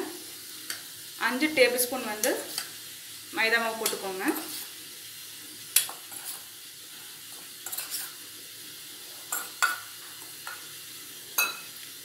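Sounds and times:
metal spoon clinking in steel bowl: 11.4 - 11.7.

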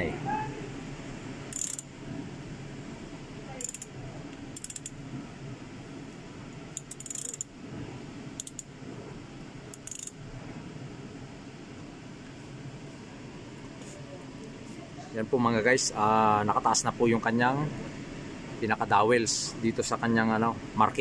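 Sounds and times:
ratchet wrench clicking: 1.5 - 1.9, 3.6 - 3.9, 4.5 - 5.0, 6.8 - 7.5, 8.4 - 8.7, 9.7 - 10.2.

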